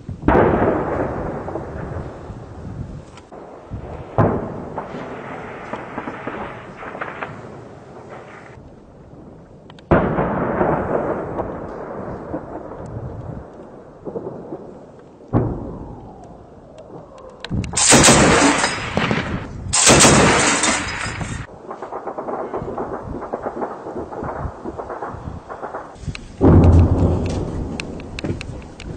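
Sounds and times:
heavy gunfire blasts with echo: 0:03.3 - 0:08.6, 0:17.7 - 0:28.9
machine-gun fire bursts: 0:17.8 - 0:26.0.

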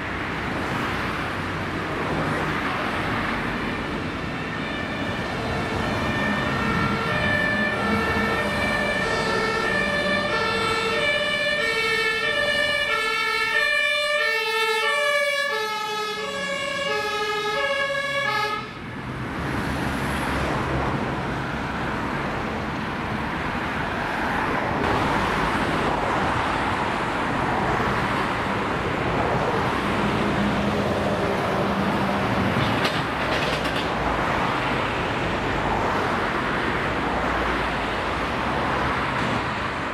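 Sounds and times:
passing vehicle engines: 0:00.0 - 0:39.9
road traffic: 0:00.0 - 0:39.9
two-tone fire engine sirens: 0:03.5 - 0:18.9.

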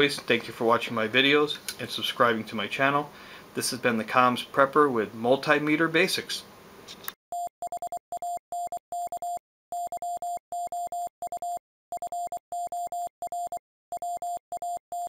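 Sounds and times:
morse code beeps: 0:07.3 - 0:15.0.

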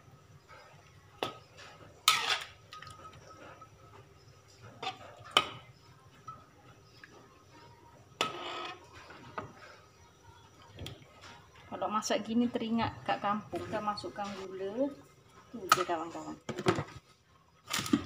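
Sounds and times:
spatula scraping wok: 0:01.6 - 0:03.8, 0:08.2 - 0:09.7.

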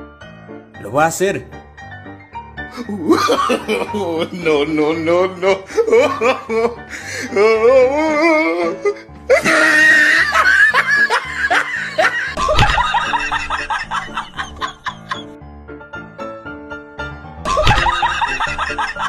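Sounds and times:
background music: 0:00.0 - 0:19.0
laughter: 0:03.0 - 0:06.8, 0:09.3 - 0:15.4, 0:17.5 - 0:19.0.

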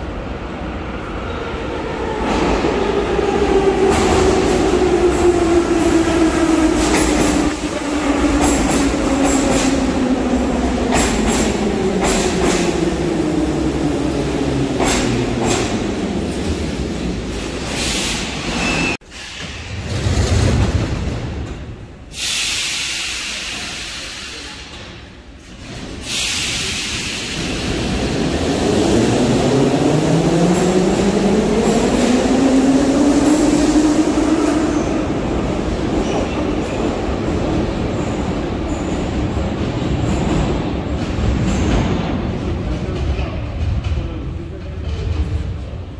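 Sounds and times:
train brakes hissing: 0:22.1 - 0:24.9, 0:25.9 - 0:28.3.

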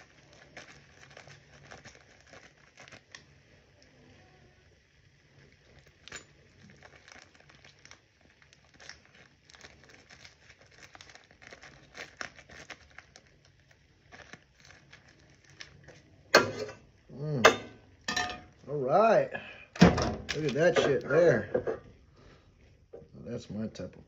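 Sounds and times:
plastic wrap crinkling: 0:00.0 - 0:04.4, 0:05.2 - 0:17.0, 0:20.0 - 0:22.9.

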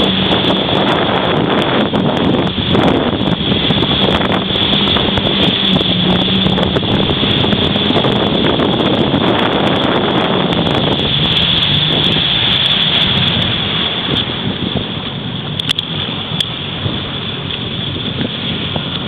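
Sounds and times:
jet ski engine running: 0:00.0 - 0:19.0
rushing water: 0:00.0 - 0:19.0
wind buffeting microphone: 0:00.0 - 0:19.0.

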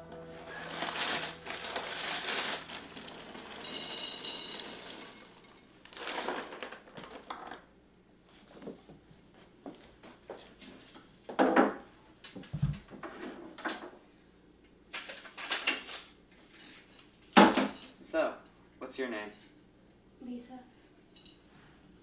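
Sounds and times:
plastic bag crinkling: 0:00.4 - 0:07.6
cereal pouring into a bowl: 0:00.6 - 0:07.4.

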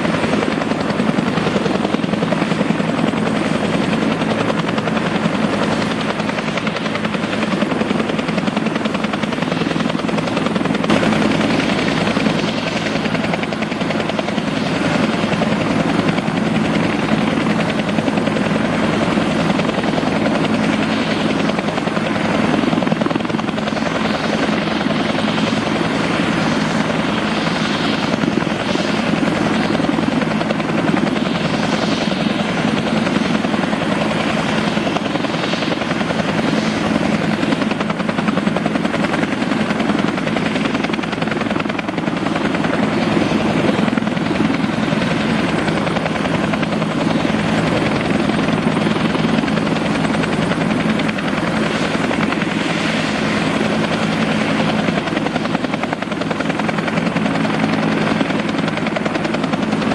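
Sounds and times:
helicopter engine and rotors: 0:00.0 - 0:59.9.

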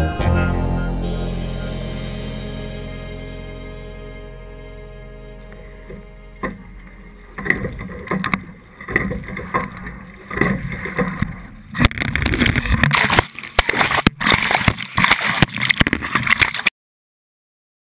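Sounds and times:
water splashing against hull: 0:05.5 - 0:16.7
splashing on microphone: 0:11.8 - 0:16.7.

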